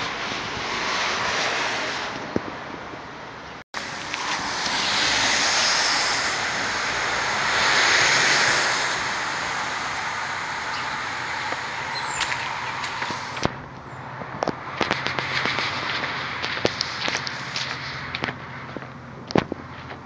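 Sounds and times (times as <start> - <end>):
wind rushing: 3.8 - 19.6.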